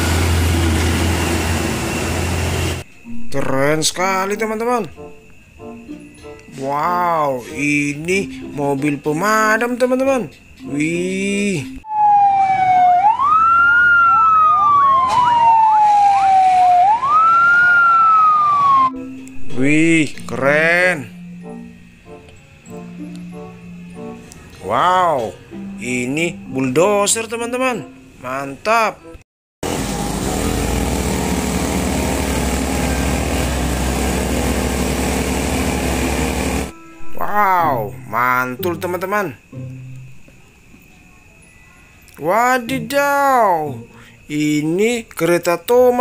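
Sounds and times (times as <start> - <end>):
wheel loader diesel engine: 0.0 - 4.4, 29.6 - 36.8
short rising siren sweeps: 11.8 - 20.1, 35.7 - 37.9
fire engine siren wailing: 11.8 - 20.4, 29.6 - 37.8.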